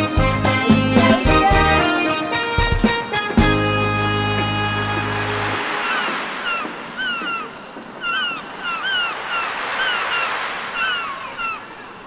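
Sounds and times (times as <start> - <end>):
steady rushing background noise: 4.6 - 12.0
small birds chirping: 5.6 - 12.0.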